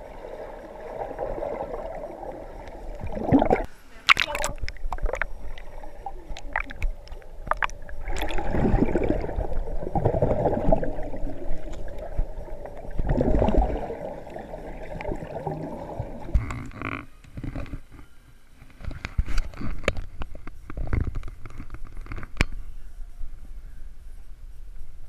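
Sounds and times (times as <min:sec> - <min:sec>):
underwater gurgling and bubbles: 0:00.0 - 0:18.0.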